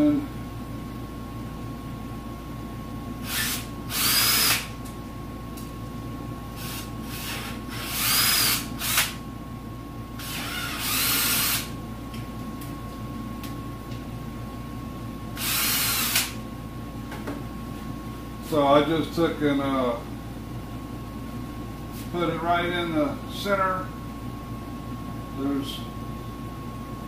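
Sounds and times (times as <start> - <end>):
power drill whining: 3.2 - 4.7, 6.6 - 9.2, 10.2 - 11.7, 15.4 - 16.4.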